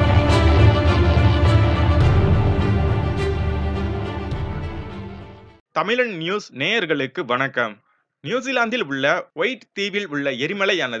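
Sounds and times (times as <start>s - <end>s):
news theme music: 0.0s - 5.6s.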